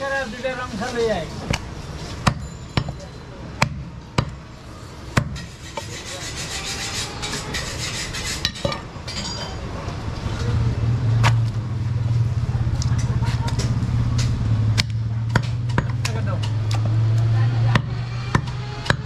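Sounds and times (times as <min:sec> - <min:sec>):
cleaver striking chopping block: 0:02.2 - 0:03.0, 0:03.6 - 0:04.4, 0:05.2 - 0:05.5, 0:14.7 - 0:16.9, 0:17.8 - 0:19.0.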